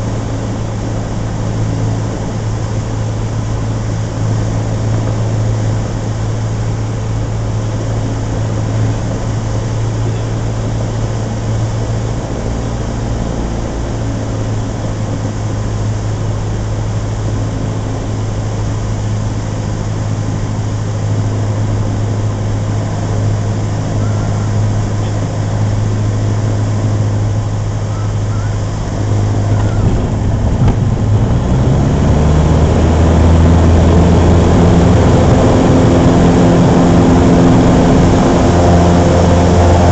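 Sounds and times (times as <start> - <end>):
light aircraft engine and propeller: 0.0 - 39.9.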